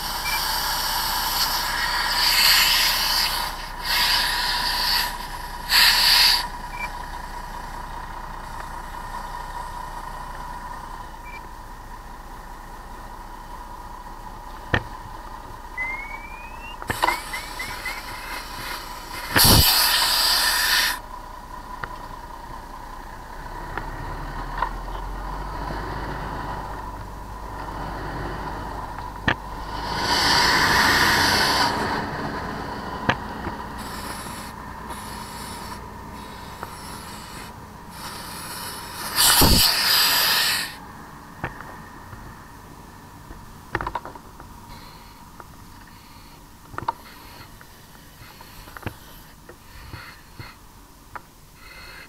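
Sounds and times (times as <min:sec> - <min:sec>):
loud hissing rushes: 0:00.0 - 0:06.7, 0:16.0 - 0:21.0, 0:29.5 - 0:41.0.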